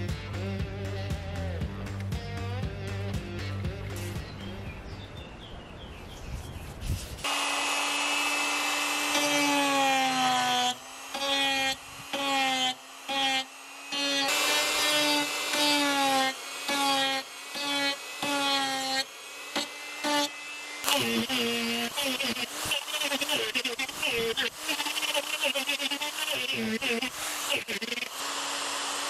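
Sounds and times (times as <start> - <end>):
die grinder carving wood: 7.1 - 29.0.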